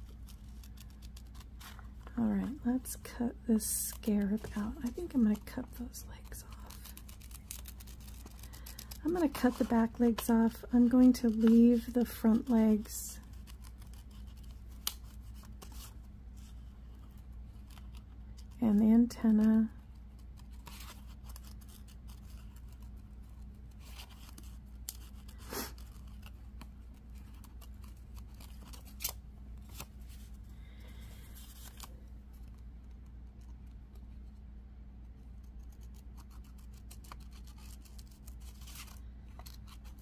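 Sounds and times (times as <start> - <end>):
steady low hum: 0.0 - 40.0
scissors snipping paper: 3.9 - 15.9, 35.4 - 40.0.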